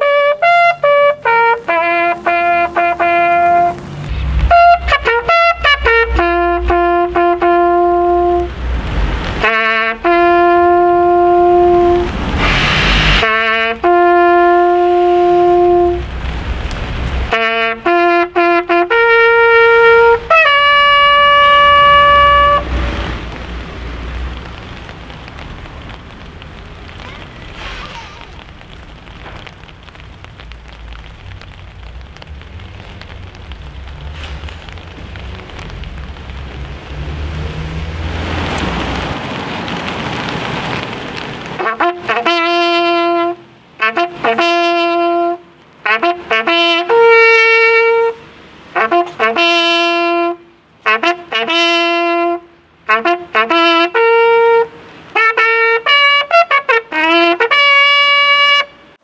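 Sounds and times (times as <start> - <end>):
bugle call: 0.0 - 3.8, 4.5 - 8.5, 13.2 - 16.0, 17.3 - 22.7, 48.8 - 58.7
rain pattering on umbrellas: 0.0 - 59.0.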